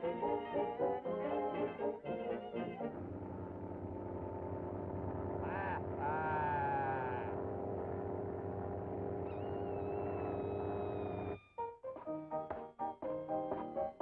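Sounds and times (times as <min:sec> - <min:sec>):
buzzing drone of held tones: 0:02.5 - 0:11.4
wavering squawks: 0:09.3 - 0:11.6.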